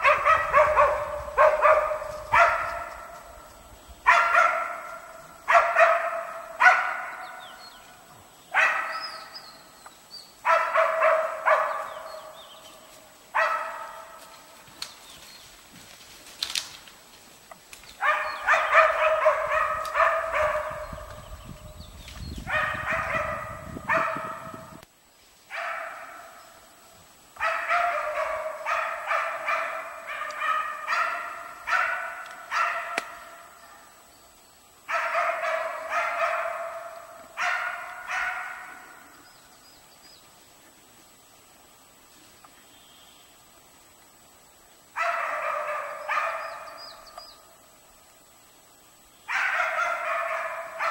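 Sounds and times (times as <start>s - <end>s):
dog barking rapidly: 0.0s - 3.2s, 4.0s - 7.4s, 8.5s - 9.2s, 10.4s - 12.1s, 13.4s - 14.1s, 18.0s - 21.2s, 22.4s - 24.8s, 25.5s - 26.3s, 27.4s - 33.4s, 34.9s - 39.0s, 45.0s - 47.0s, 49.3s - 50.9s.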